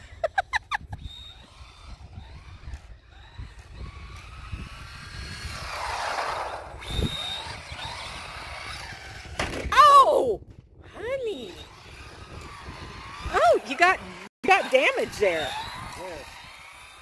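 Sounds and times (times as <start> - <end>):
toy car electric motor whining: 0.0 - 9.7, 11.0 - 17.0
person exclaiming: 9.7 - 10.4.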